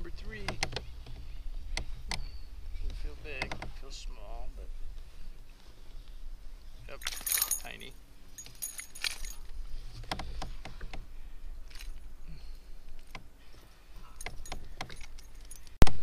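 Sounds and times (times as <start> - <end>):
small clicks and rattles: 14.0 - 15.8.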